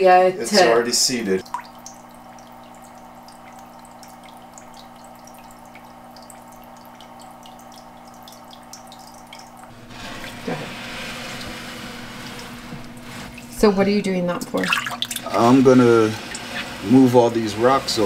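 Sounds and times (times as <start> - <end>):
aquarium filter motor hum: 0.1 - 18.0
water splashing: 1.2 - 18.0
water dripping and trickling: 1.4 - 9.7, 14.4 - 16.7.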